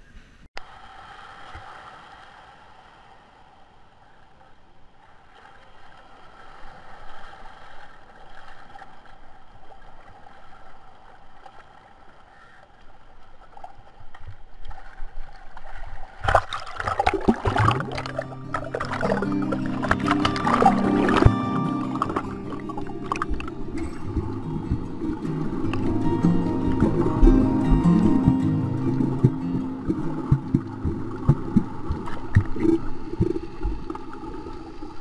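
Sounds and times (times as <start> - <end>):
water lapping on pebble beach: 5.2 - 35.0
underwater splashing and gurgling: 13.4 - 35.0.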